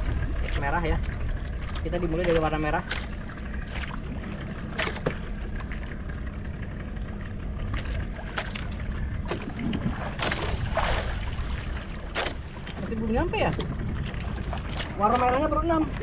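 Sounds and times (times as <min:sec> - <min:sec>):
water around boat: 0:00.0 - 0:16.0
wind: 0:00.0 - 0:16.0
light knocks on boat: 0:04.6 - 0:05.8.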